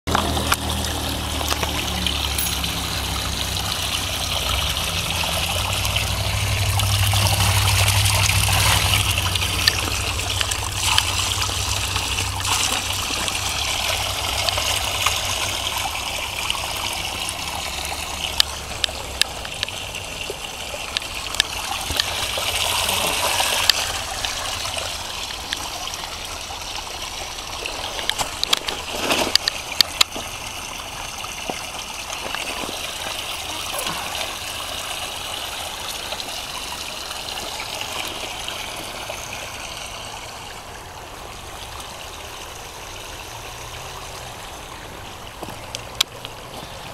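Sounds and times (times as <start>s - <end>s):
low rumble: 0.1s - 15.0s
water splashing onto rocks: 0.1s - 40.3s.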